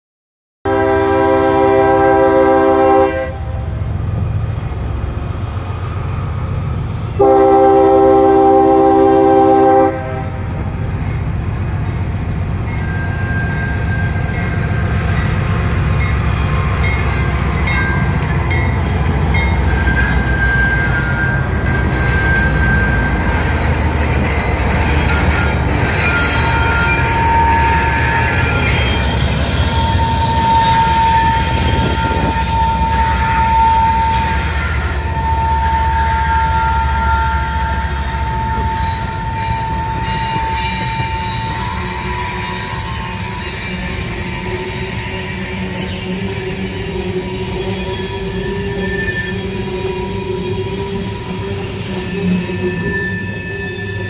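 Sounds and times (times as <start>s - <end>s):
locomotive air horn: 0.7s - 3.8s, 7.2s - 10.6s, 25.0s - 54.0s
train rumble: 0.7s - 54.0s
train wheels squealing: 8.6s - 54.0s.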